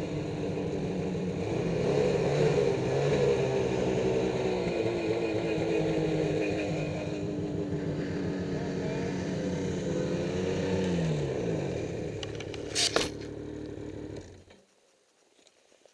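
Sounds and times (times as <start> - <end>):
snowmobile engines running: 0.0 - 15.3.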